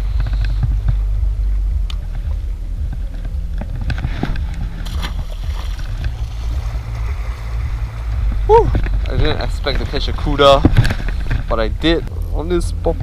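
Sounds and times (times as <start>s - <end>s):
wind rumble on microphone: 0.0s - 13.0s
fish splashing into water: 4.8s - 8.6s.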